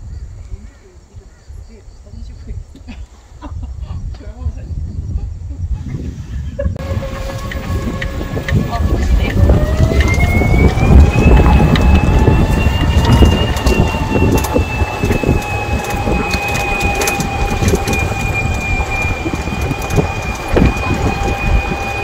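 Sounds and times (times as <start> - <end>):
wind buffeting microphone: 0.0 - 22.0
electric cart motor whine: 6.8 - 22.0.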